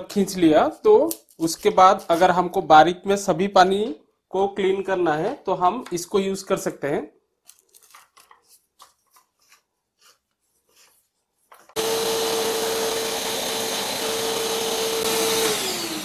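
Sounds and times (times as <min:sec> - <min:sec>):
vacuum cleaner motor running: 0:11.8 - 0:16.0.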